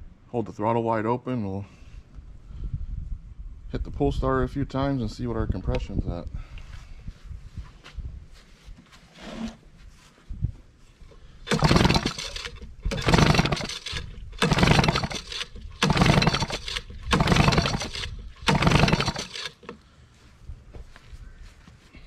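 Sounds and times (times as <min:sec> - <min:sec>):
outboard engine pull starter cranking: 0:11.4 - 0:19.8.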